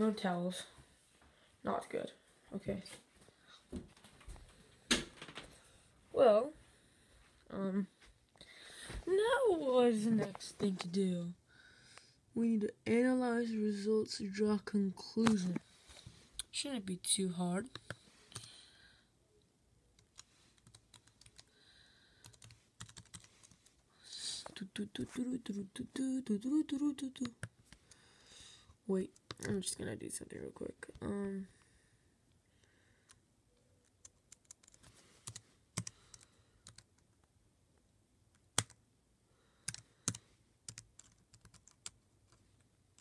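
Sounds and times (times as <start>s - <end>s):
laptop keyboard typing: 17.7s - 18.5s, 20.0s - 21.5s, 22.2s - 23.7s, 33.8s - 37.2s, 38.4s - 38.8s, 39.6s - 43.0s.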